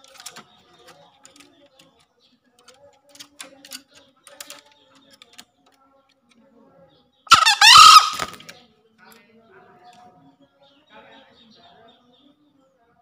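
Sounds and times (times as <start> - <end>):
rooster crowing: 7.3 - 8.4.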